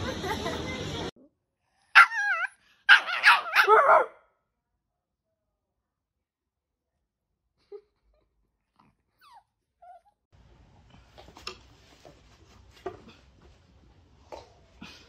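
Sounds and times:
small dog whining: 0:02.0 - 0:02.6, 0:09.1 - 0:10.2.

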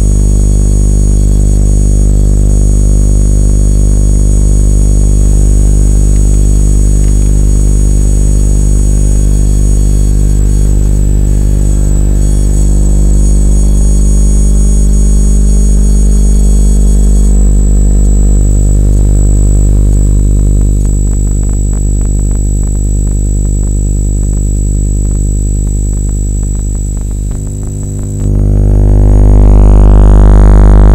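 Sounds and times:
high whine: 0:00.0 - 0:30.9
loud electrical buzz: 0:00.0 - 0:30.9
rapid crackling clicks: 0:19.9 - 0:28.5.

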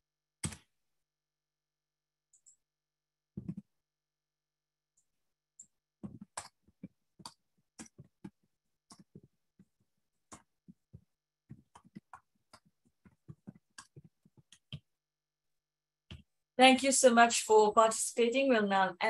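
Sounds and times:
faint irregular clicks and taps: 0:03.4 - 0:03.7, 0:05.0 - 0:15.0, 0:16.1 - 0:16.4.

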